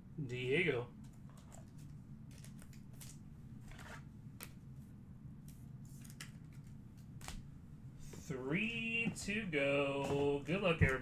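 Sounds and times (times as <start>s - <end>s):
cards and plastic packaging rustling: 1.3s - 4.6s.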